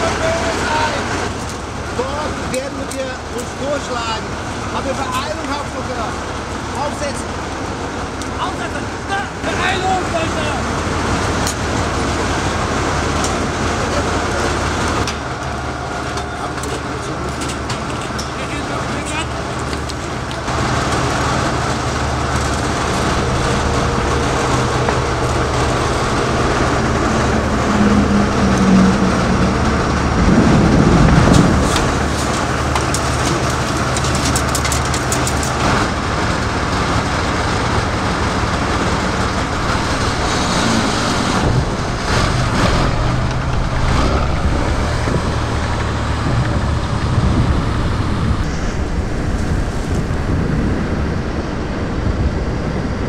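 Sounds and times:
armoured vehicle engine humming: 0.0 - 53.0
sharp clattering clicks: 30.9 - 35.9.

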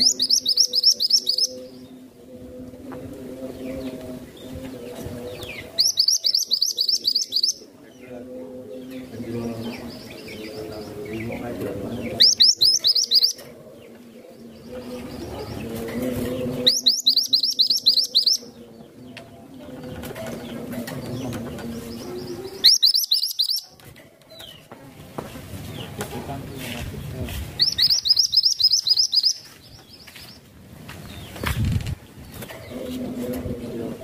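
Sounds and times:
bird rapid high chirps: 0.0 - 1.8, 5.5 - 7.7, 12.1 - 13.4, 16.6 - 18.6, 22.5 - 23.7, 27.6 - 30.3.

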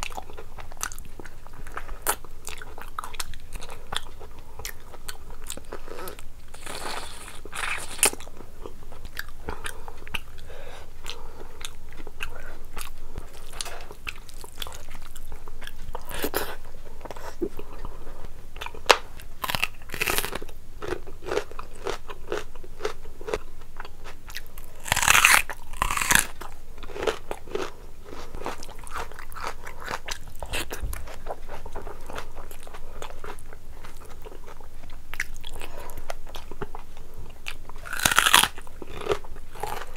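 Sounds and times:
chewing food: 0.0 - 18.0, 18.6 - 39.9
crunching raw onion: 18.6 - 23.4, 24.3 - 34.5, 37.4 - 39.9.

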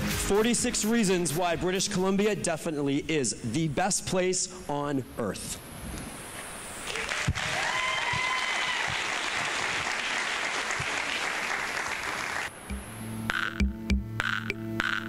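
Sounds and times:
audience applauding: 6.9 - 12.5
electronic music with steady beat: 12.7 - 15.0.

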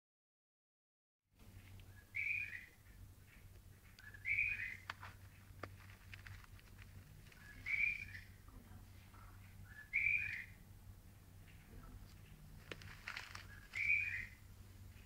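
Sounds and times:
steady low hum: 1.4 - 15.0
bird whistled call: 1.9 - 2.8, 4.0 - 4.8, 7.4 - 8.3, 9.7 - 10.6, 13.5 - 14.4.

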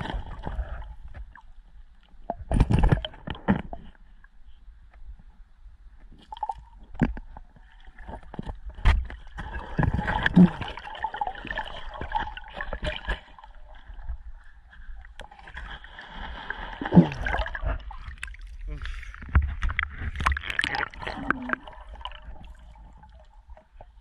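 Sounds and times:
muffled gurgling water: 0.0 - 24.0
underwater clicks and knocks: 2.2 - 4.0, 6.0 - 10.8, 17.3 - 24.0.

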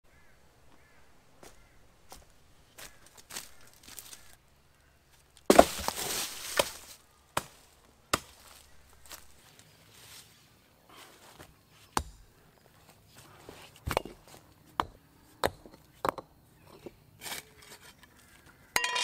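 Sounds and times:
shovel scraping soil: 5.5 - 7.0, 16.7 - 18.2
shovel chopping into ground: 5.5 - 7.6
rock knocking against stone: 14.8 - 16.3.

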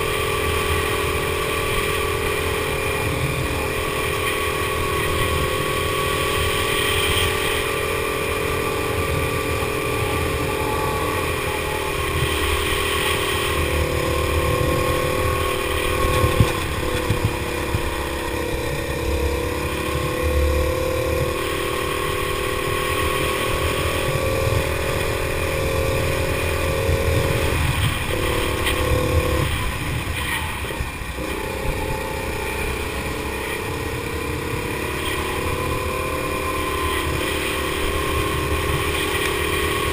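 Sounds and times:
go-kart engine at high revs: 0.0 - 39.9
low rumble: 10.0 - 21.9.

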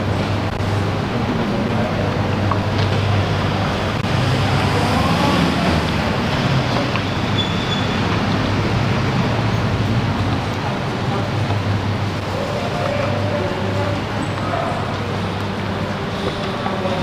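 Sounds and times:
faint distant voices: 10.2 - 17.0.

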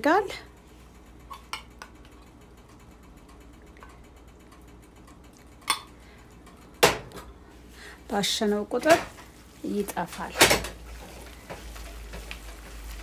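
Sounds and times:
small rapid mixing clicks: 0.5 - 6.8, 8.6 - 13.0.

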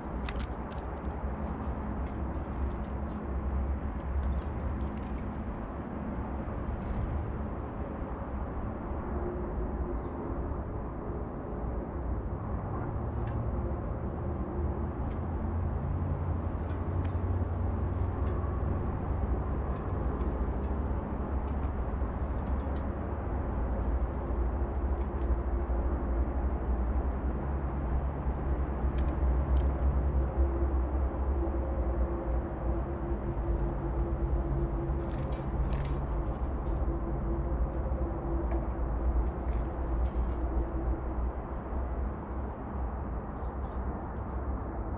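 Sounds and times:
distant road traffic rumble: 12.4 - 44.9.

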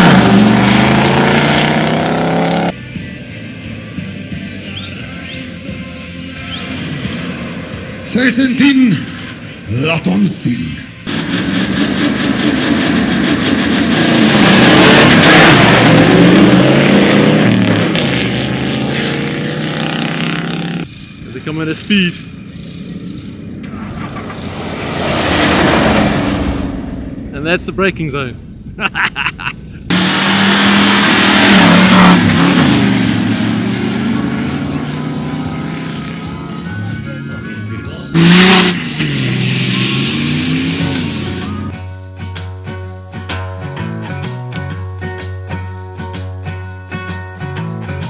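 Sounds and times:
pickup engines revving hard: 0.0 - 2.7, 11.1 - 23.6, 29.9 - 36.3, 38.1 - 41.7.

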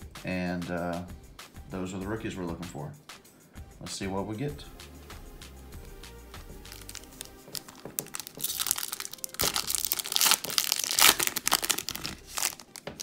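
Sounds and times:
foil wrapper crinkling and tearing: 6.6 - 13.0.

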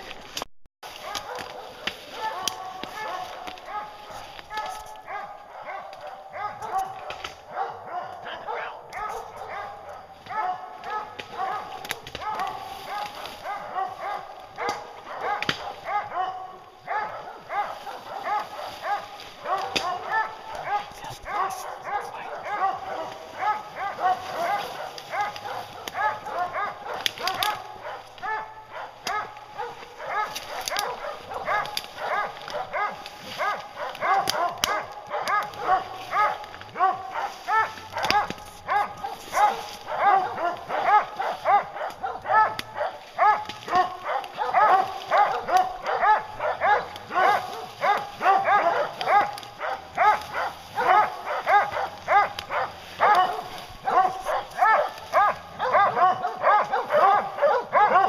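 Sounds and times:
hounds barking: 0.8 - 58.0.

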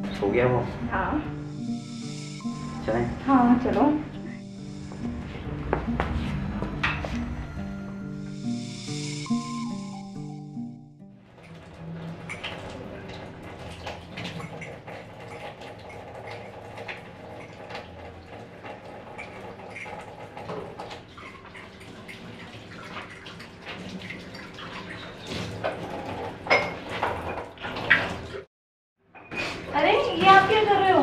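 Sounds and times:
tap water running into sink: 11.3 - 28.5
dishes clinking: 25.6 - 28.2.

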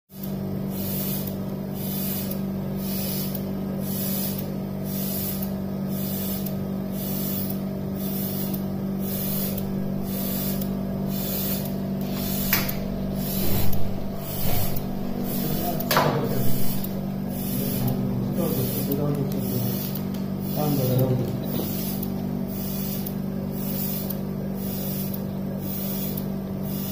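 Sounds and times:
suction machine motor hum: 0.1 - 26.9
pulsing high hiss: 8.0 - 26.9
sharp click: 12.5 - 12.8.

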